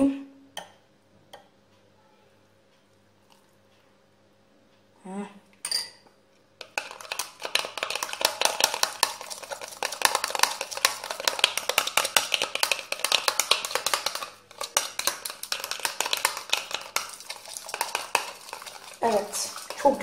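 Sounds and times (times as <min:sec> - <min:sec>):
spoon scraping bowl stirring slime: 0:06.6 - 0:20.0.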